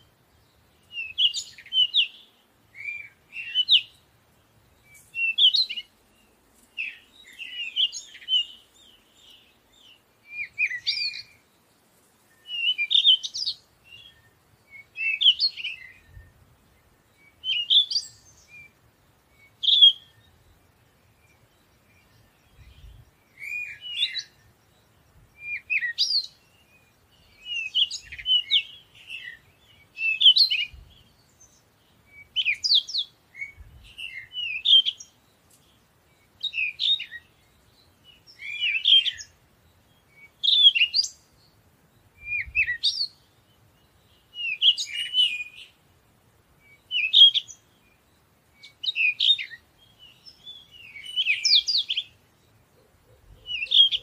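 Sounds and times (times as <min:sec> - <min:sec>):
songbirds chirping: 0:00.0 - 0:54.0.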